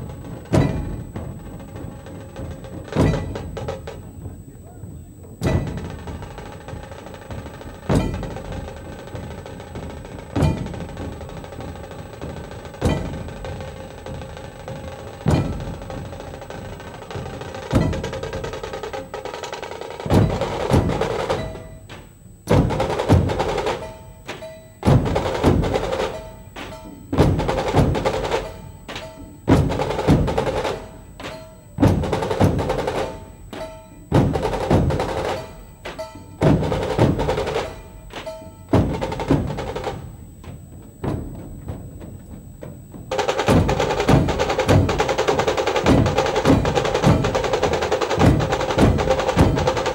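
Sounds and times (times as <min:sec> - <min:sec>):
barrel drums beating heavy rhythm: 0:00.0 - 0:49.9
rattling stick-drum roll: 0:00.0 - 0:49.9.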